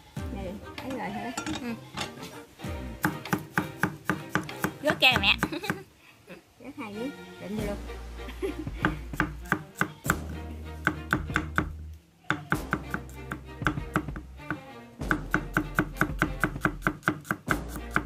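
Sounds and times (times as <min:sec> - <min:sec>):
knife chopping on cutting board: 0:03.0 - 0:05.8, 0:08.8 - 0:18.0.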